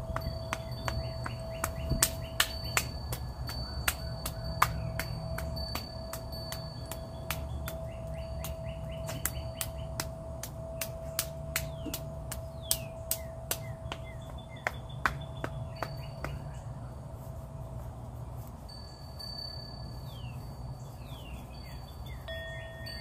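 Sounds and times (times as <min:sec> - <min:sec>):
hands tapping on body: 0:00.0 - 0:16.7
birds chirping: 0:00.0 - 0:23.0
steady held tone: 0:22.2 - 0:23.0.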